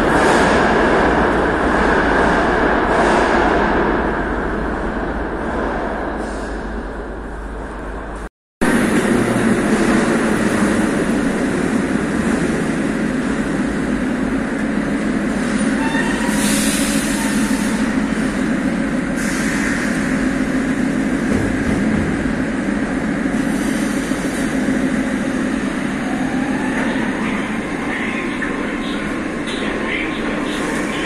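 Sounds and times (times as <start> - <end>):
train humming: 0.0 - 31.0.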